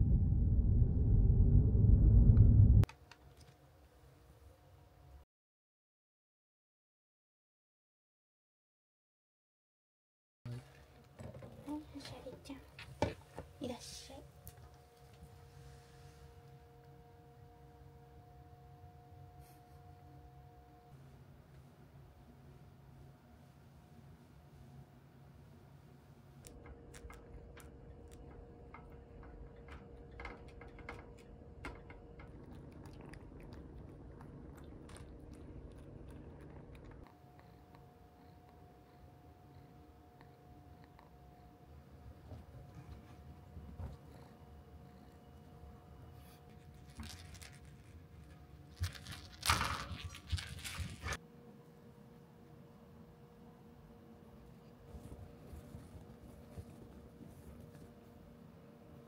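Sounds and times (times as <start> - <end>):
kitten chewing food: 26.4 - 38.6.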